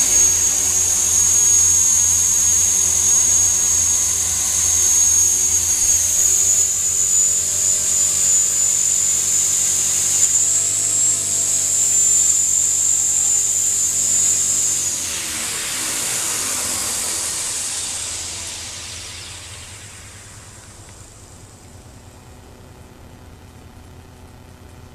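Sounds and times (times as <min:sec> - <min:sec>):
model helicopter motor whine: 0:00.0 - 0:24.9
rotor winding down: 0:00.0 - 0:24.9.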